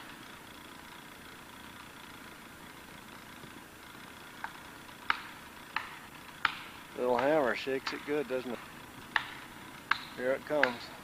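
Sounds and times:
hammer striking wedge: 0:05.1 - 0:08.6, 0:09.2 - 0:10.9.

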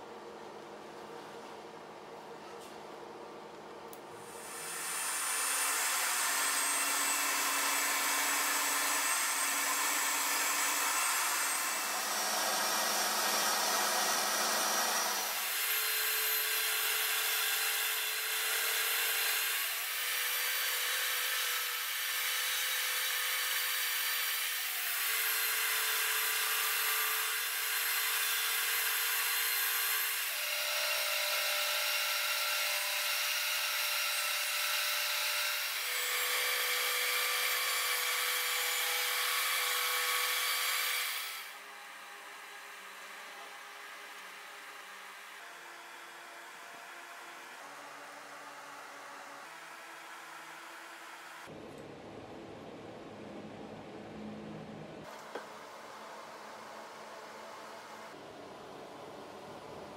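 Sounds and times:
table saw blade cutting wood: 0:04.2 - 0:41.6.

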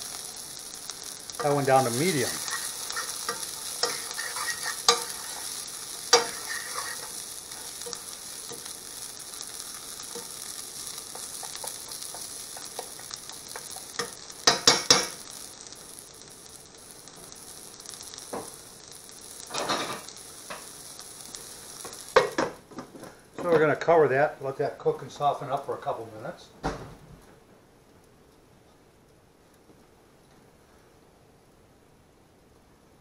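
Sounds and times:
food sizzling in a frying pan: 0:00.0 - 0:26.3
metal utensil clicking on pan: 0:02.3 - 0:08.7, 0:11.1 - 0:15.2.

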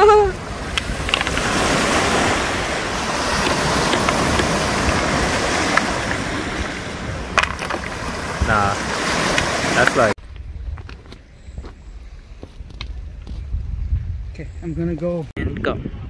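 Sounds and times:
small waves lapping on pebbles: 0:00.4 - 0:10.2.

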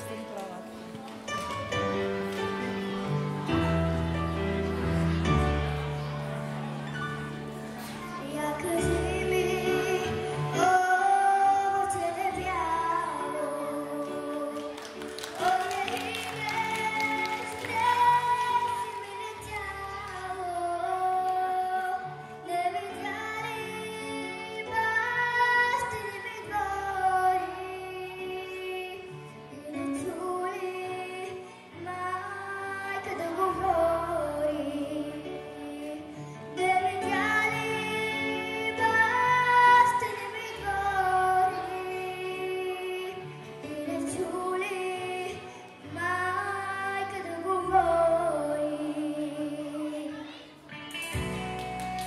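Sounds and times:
girl singing into microphone: 0:07.8 - 0:51.4.

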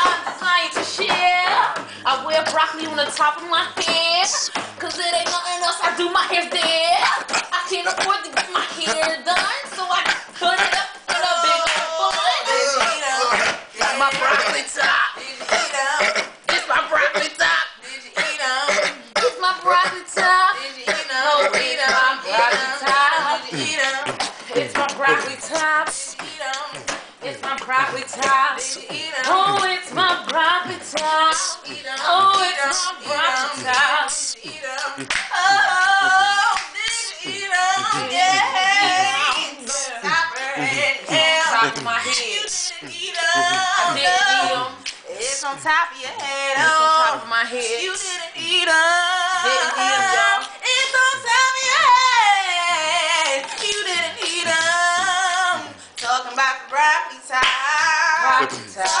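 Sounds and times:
hand claps: 0:00.0 - 0:17.3, 0:22.5 - 0:45.0, 0:53.1 - 0:56.4, 0:57.4 - 0:57.7
girls singing a cappella: 0:00.0 - 0:59.0.

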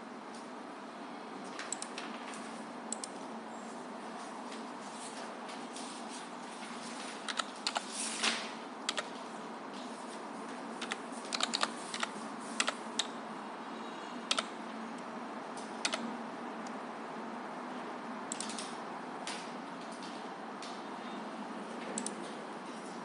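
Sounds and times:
faint steady hum: 0:00.0 - 0:23.0
keyboard typing: 0:01.7 - 0:02.2, 0:07.2 - 0:07.9, 0:08.9 - 0:09.2, 0:10.8 - 0:13.2, 0:14.3 - 0:14.6, 0:15.6 - 0:16.1, 0:18.3 - 0:18.8, 0:21.9 - 0:22.4.

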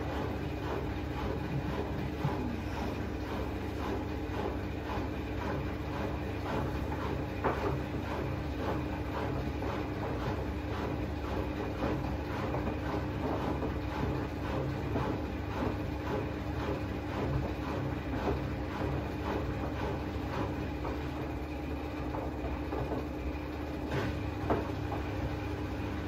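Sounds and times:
washing machine hum: 0:00.0 - 0:26.0.

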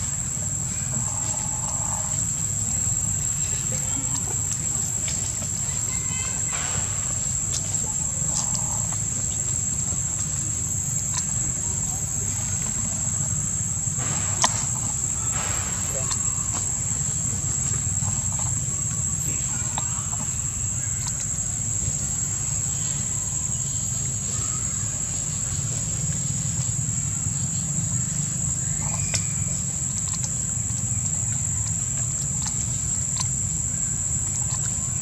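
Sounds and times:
high-pitched insect drone: 0:00.0 - 0:35.0
low continuous rumble: 0:00.0 - 0:35.0
rustles of dry leaf litter: 0:00.0 - 0:35.0.

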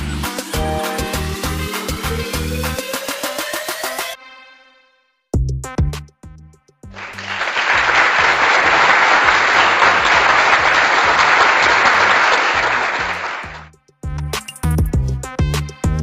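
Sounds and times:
background music with bass beat: 0:00.0 - 0:04.0, 0:13.5 - 0:16.0
applause: 0:07.0 - 0:13.7.

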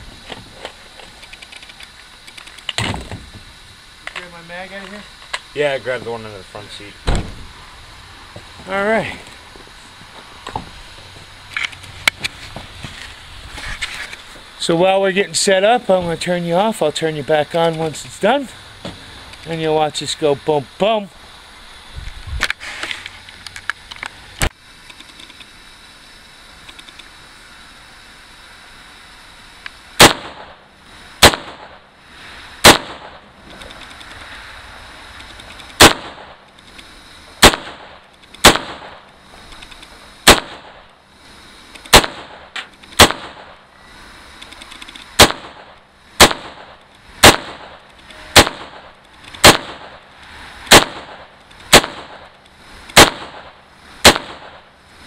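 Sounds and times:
rifle shots: 0:30.0 - 0:30.6, 0:31.2 - 0:31.9, 0:32.6 - 0:33.2, 0:35.8 - 0:36.4, 0:37.4 - 0:39.1, 0:40.2 - 0:40.9, 0:41.9 - 0:43.6, 0:45.2 - 0:50.0, 0:50.7 - 0:52.3, 0:53.0 - 0:54.7.

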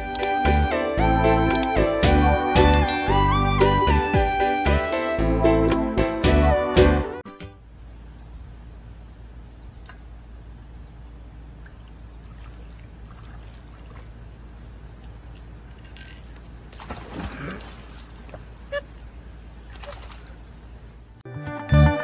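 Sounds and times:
low background hum: 0:07.4 - 0:21.2
dog splashing into pool: 0:16.7 - 0:18.5.

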